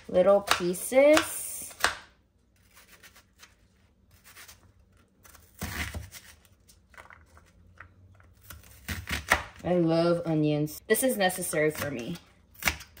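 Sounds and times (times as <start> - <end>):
knife cutting onion: 0.0 - 6.5, 8.4 - 9.8, 11.3 - 13.0.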